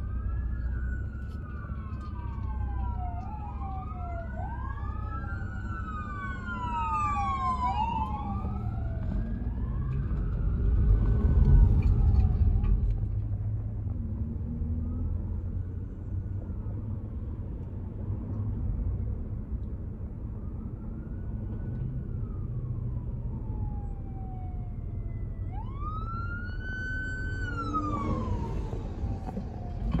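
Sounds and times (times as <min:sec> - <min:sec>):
emergency sirens wailing: 0:00.0 - 0:13.2, 0:19.8 - 0:30.0
low rumble of traffic: 0:00.0 - 0:30.0.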